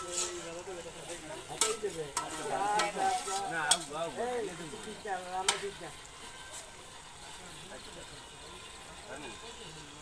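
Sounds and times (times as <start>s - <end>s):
ladle scraping and knocking pan: 0.0s - 4.0s
ladle stirring food in pan: 0.0s - 10.0s.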